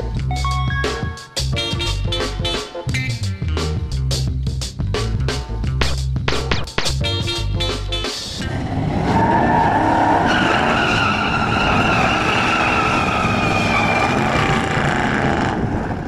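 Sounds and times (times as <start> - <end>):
tires squealing: 8.4 - 15.8.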